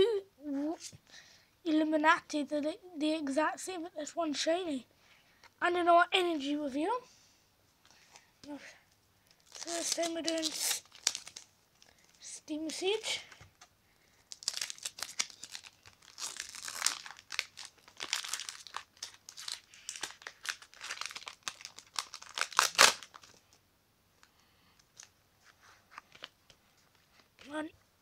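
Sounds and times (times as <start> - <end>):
foil wrapper crinkling and tearing: 9.3 - 12.3, 13.6 - 23.6.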